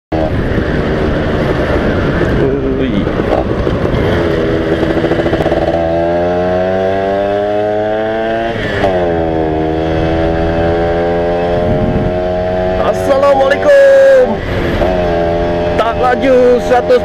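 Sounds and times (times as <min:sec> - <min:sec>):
motorcycle engine accelerating: 0:00.1 - 0:17.0.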